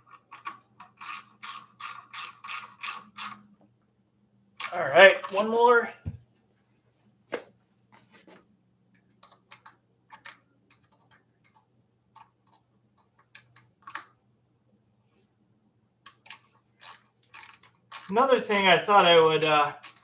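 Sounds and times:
small metal parts clinking: 16.1s - 18.2s.

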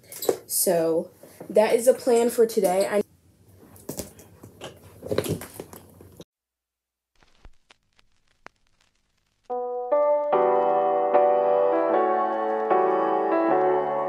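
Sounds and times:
soft piano music: 9.5s - 14.0s.

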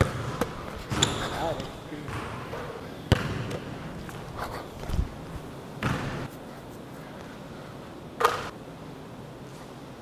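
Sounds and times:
basketball bouncing on wooden floor: 0.0s - 1.3s, 2.1s - 2.4s, 3.1s - 3.6s, 5.8s - 6.3s.

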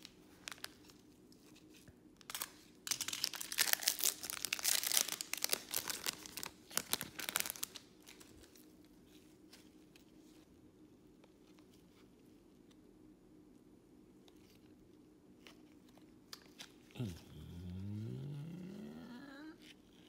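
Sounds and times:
foil wrapper tearing and crinkling: 2.2s - 8.6s.

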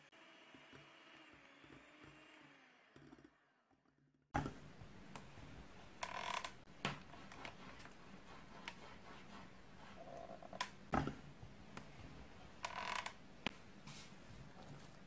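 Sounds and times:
electric hand mixer running: 0.0s - 3.5s.

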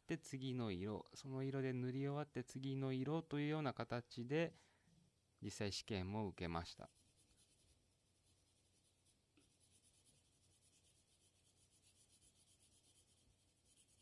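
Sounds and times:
colored pencil scratching on paper: 6.7s - 14.0s.

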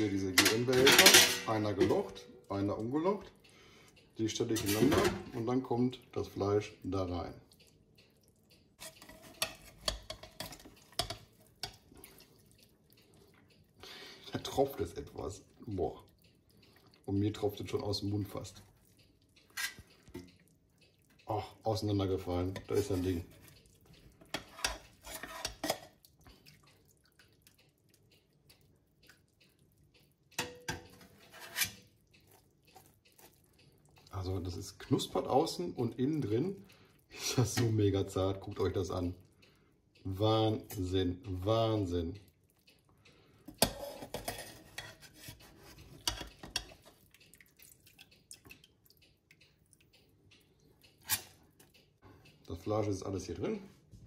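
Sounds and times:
metal ladle clinking in a pot: 0.0s - 2.0s, 24.3s - 26.0s
metal spoon clattering on a pan: 0.0s - 2.0s, 8.8s - 11.8s, 24.3s - 26.0s, 30.4s - 31.8s, 43.5s - 45.4s, 46.0s - 46.9s
fat dripping from a spoon: 5.2s - 52.6s.

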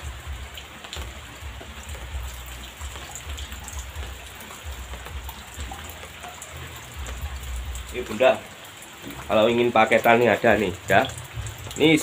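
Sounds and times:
light rain pattering: 0.0s - 12.0s
low rumbling thumps: 11.1s - 11.8s.

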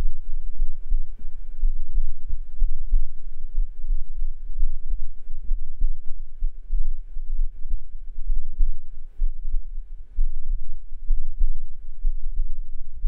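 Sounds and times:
heartbeat thumps: 0.0s - 13.0s.

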